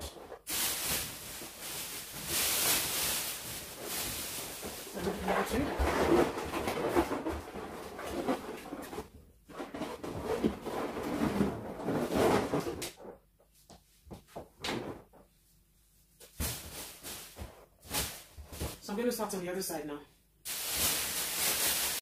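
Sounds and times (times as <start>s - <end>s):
balloons rubbing and bumping: 0.0s - 13.4s.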